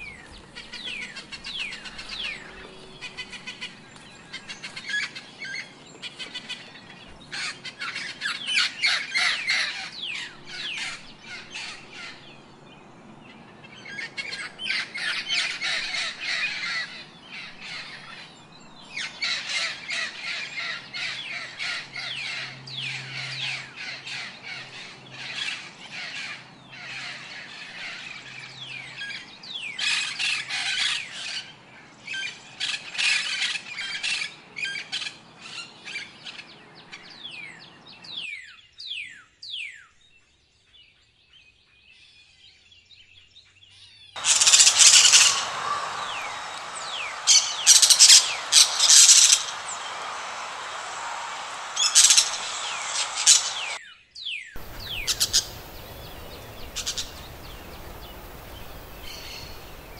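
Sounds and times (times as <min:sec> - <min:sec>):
parakeets squawking: 0:44.2 - 0:53.8, 0:54.6 - 0:59.9.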